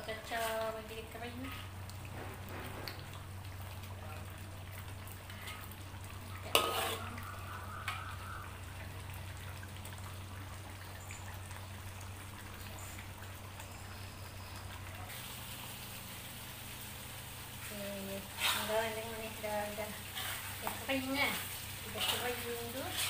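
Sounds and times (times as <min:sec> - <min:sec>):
sauce simmering and sizzling: 0:00.0 - 0:23.0
metal ladle clanking on wok: 0:06.4 - 0:07.2.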